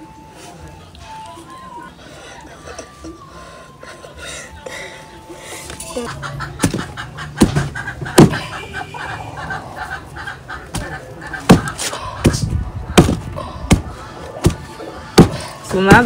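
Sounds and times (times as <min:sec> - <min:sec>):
pestle thudding in wooden mortar: 0:06.6 - 0:08.4, 0:10.7 - 0:16.0.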